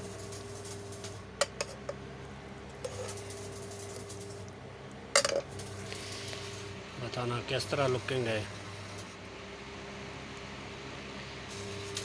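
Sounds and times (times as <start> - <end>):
steady low hum: 0.0 - 12.0
tableware clatter: 5.2 - 5.6.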